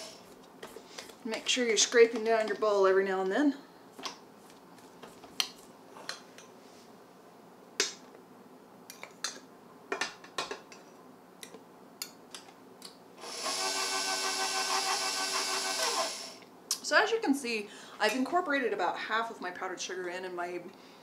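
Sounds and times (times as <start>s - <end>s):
stand mixer motor whine: 13.2s - 16.4s.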